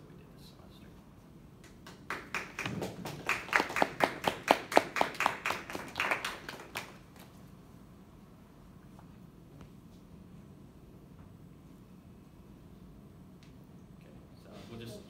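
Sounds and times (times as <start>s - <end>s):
small group clapping: 1.6s - 7.4s.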